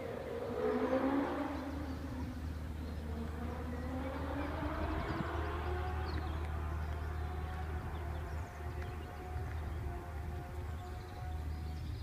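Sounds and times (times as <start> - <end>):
motorcycle engine revving hard: 3.1 - 6.4.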